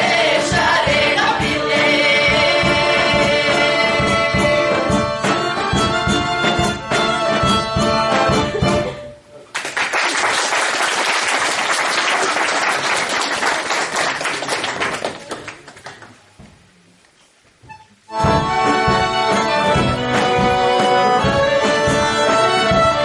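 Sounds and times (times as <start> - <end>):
folk music: 0.0 - 9.5, 17.6 - 23.0
audience applauding: 9.5 - 16.3.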